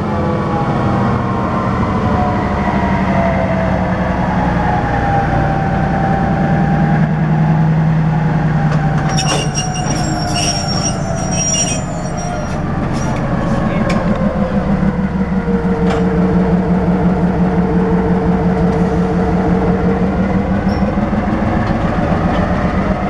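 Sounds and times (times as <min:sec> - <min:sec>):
locomotive engine droning: 0:00.0 - 0:23.0
high-pitched wheel squeal: 0:09.0 - 0:13.2, 0:20.6 - 0:21.0.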